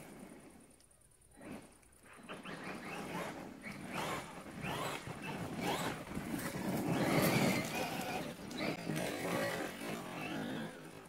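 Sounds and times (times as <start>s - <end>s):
tyres on gravel: 2.6s - 11.0s.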